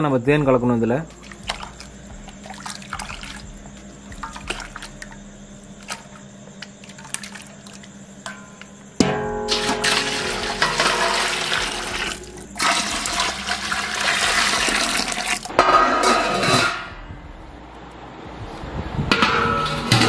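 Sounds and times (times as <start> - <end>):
liquid pouring into metal vessel: 1.1 - 3.5, 4.1 - 5.2, 9.5 - 15.5
metal clank: 8.2 - 11.6, 15.5 - 17.1, 19.1 - 20.0.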